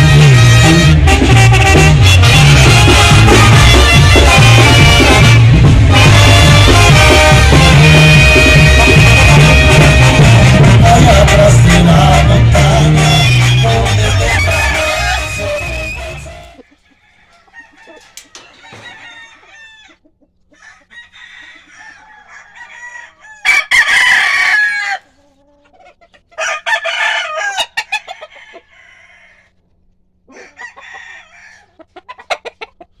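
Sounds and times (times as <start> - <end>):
roosters crowing: 0.0 - 33.0
rooster clucking: 13.0 - 33.0.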